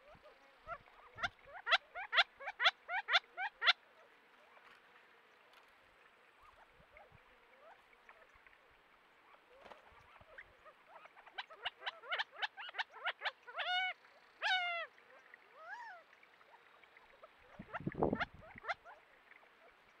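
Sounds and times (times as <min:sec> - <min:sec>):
quail calling: 0:00.0 - 0:04.0, 0:09.6 - 0:16.0, 0:17.4 - 0:19.0.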